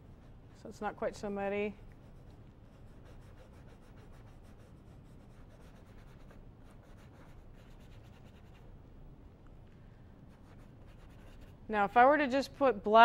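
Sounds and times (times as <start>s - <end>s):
low steady hum: 0.0s - 13.0s
paintbrush scratching on canvas: 2.0s - 8.7s, 10.4s - 11.6s.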